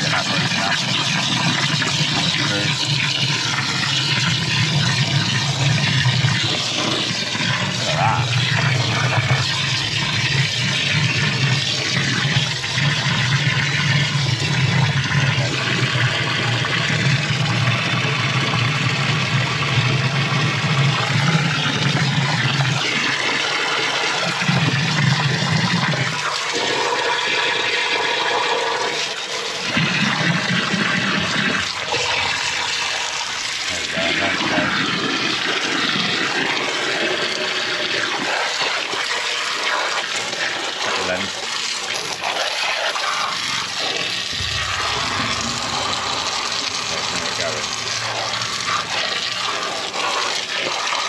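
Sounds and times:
hose spraying water: 0:00.0 - 0:17.7, 0:19.8 - 0:51.0
water splashing and gushing: 0:00.0 - 0:51.0
low rushing sound: 0:44.3 - 0:48.7.

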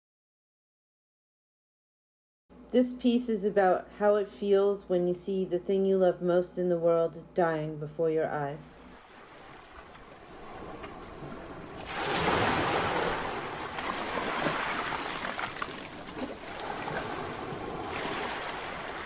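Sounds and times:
ocean waves surging: 0:09.0 - 0:19.0.

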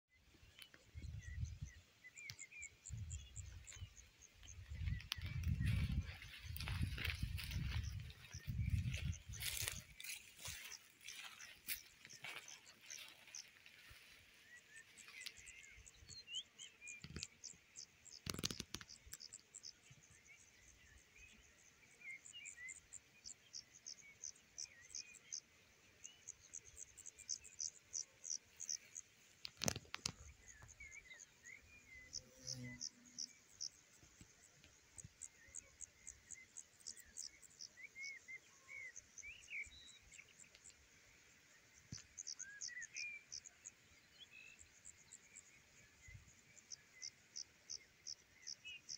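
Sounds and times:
small bird chirps: 0:00.1 - 0:20.2, 0:26.0 - 0:40.8.

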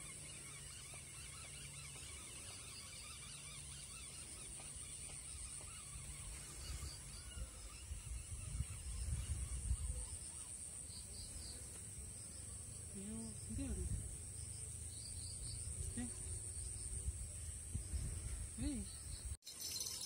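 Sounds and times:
faint bird calls: 0:00.0 - 0:11.6
high insect buzz: 0:00.0 - 0:20.0.

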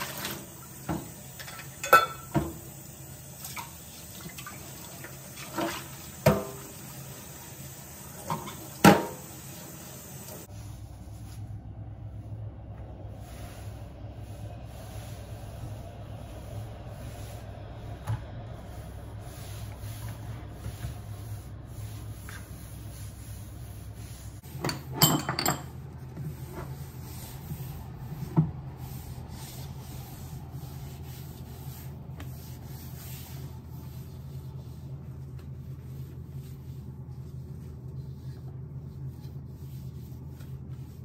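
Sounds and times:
cloth wiping a worktop: 0:00.0 - 0:24.8, 0:25.7 - 0:41.0.

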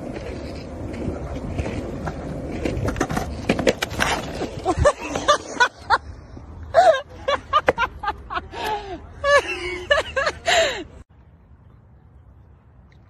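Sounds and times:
skateboard clattering: 0:00.0 - 0:05.6
skateboard wheels rolling on asphalt: 0:00.0 - 0:08.6.

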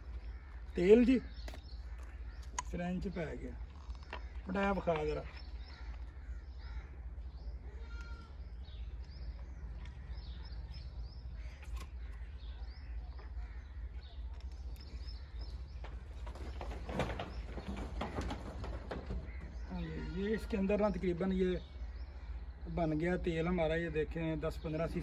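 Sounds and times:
clicks and rustles: 0:14.2 - 0:19.6.

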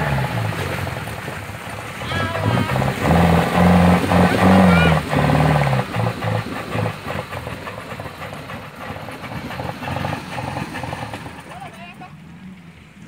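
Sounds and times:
engine revving: 0:00.0 - 0:11.8.

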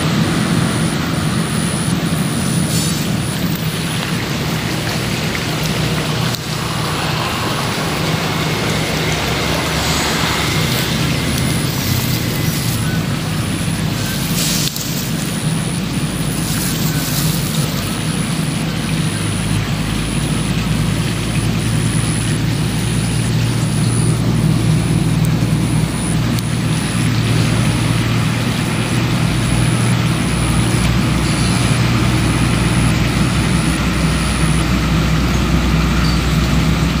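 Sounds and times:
low engine drone: 0:00.0 - 0:37.0.

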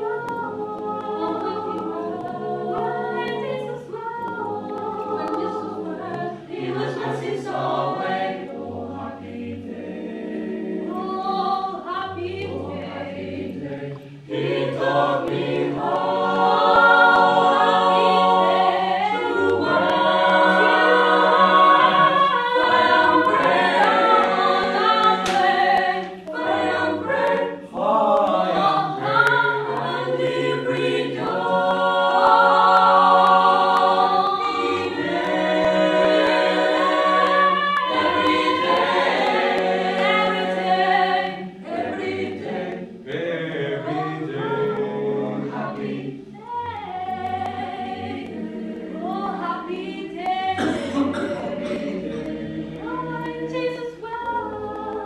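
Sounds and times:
choir singing a cappella: 0:00.0 - 0:55.0.

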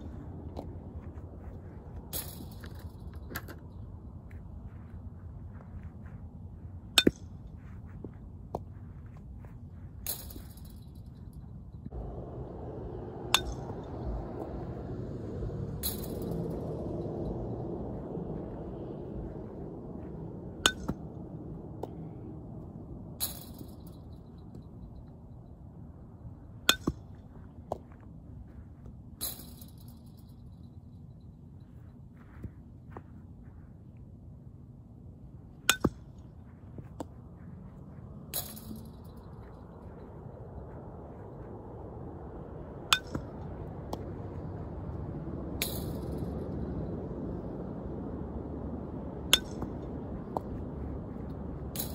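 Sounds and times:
low steady rumble: 0:00.0 - 0:51.9
outdoor background: 0:00.0 - 0:51.9
softball bat clinking hits: 0:02.0 - 0:03.6, 0:06.9 - 0:07.4, 0:10.0 - 0:11.4, 0:13.3 - 0:14.7, 0:15.7 - 0:17.2, 0:20.6 - 0:22.0, 0:23.2 - 0:25.1, 0:26.6 - 0:27.9, 0:29.2 - 0:31.1, 0:38.3 - 0:39.5, 0:42.9 - 0:44.0, 0:45.6 - 0:46.2, 0:49.3 - 0:50.6
metal bat hitting ball: 0:13.2 - 0:14.6, 0:15.8 - 0:16.6, 0:20.6 - 0:21.9, 0:26.7 - 0:27.0, 0:45.6 - 0:46.2, 0:49.3 - 0:49.8.

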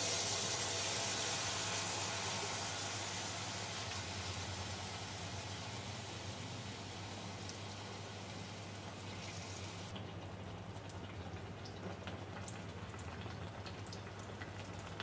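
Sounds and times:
batter sizzling in hot oil: 0:00.0 - 0:10.0.

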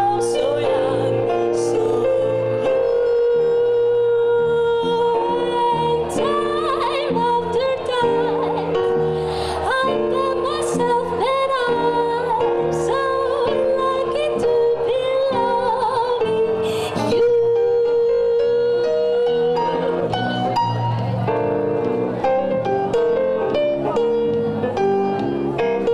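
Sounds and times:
woman singing jazz: 0:00.0 - 0:20.9
piano: 0:00.0 - 0:25.9
electric bass: 0:18.8 - 0:25.9.

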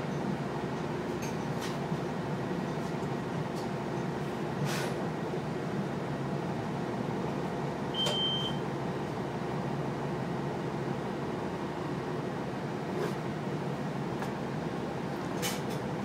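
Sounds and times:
bus engine low rumble: 0:00.0 - 0:16.0
short high beep: 0:08.0 - 0:08.6.

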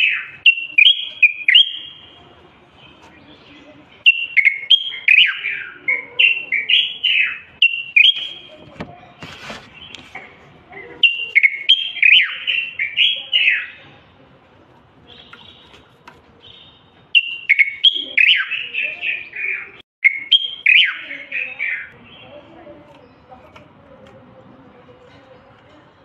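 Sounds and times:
bird singing fluty whistles: 0:00.0 - 0:02.1, 0:04.0 - 0:08.5, 0:11.0 - 0:13.8, 0:16.6 - 0:19.4, 0:20.0 - 0:21.8.

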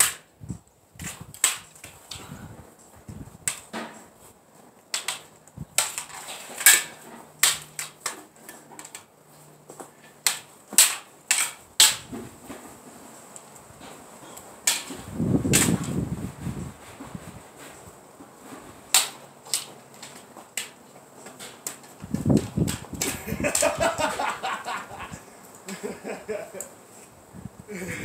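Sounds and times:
wind buffeting microphone: 0:00.3 - 0:01.4, 0:02.1 - 0:03.5, 0:14.9 - 0:18.0, 0:22.0 - 0:25.3, 0:27.1 - 0:28.0.

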